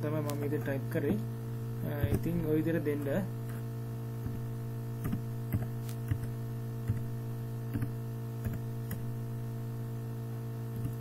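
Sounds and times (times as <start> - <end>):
electrical mains hum: 0.0 - 11.0
keyboard keystrokes: 5.0 - 7.1, 7.7 - 9.1, 10.8 - 11.0.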